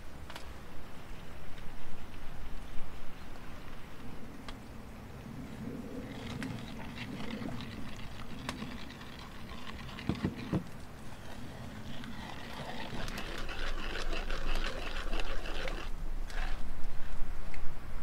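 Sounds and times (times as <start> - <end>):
wooden spoon scraping wooden bowl: 6.2 - 16.7.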